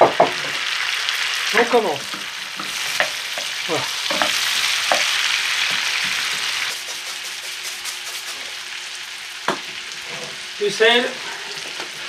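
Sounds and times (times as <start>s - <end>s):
potatoes sizzling in a frying pan: 0.0s - 12.0s.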